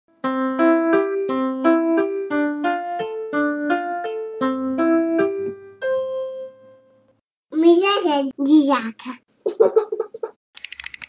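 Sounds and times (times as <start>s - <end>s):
keyboard jingle melody: 0.4s - 7.0s.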